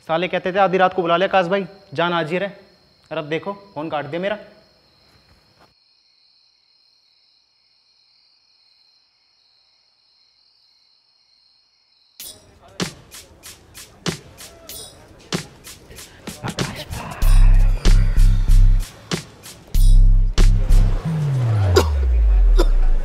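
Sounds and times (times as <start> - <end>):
crickets chirping: 0.2 - 20.0
music with sharp regular beat: 12.2 - 23.0.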